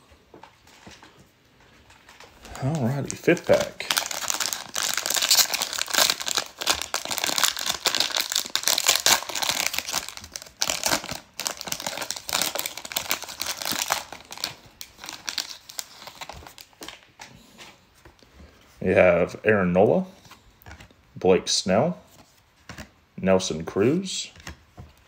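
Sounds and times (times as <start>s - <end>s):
card wrapper tearing and crinkling: 2.4s - 17.1s.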